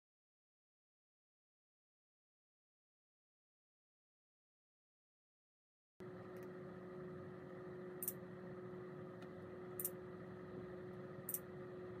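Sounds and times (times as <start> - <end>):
faint steady hum: 6.0 - 12.0.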